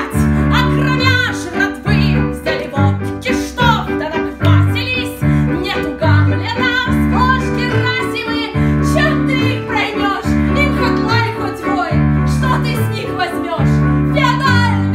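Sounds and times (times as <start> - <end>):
instrumental accompaniment: 0.0 - 14.9
woman singing: 0.0 - 14.9
sustained bass notes: 13.6 - 14.9.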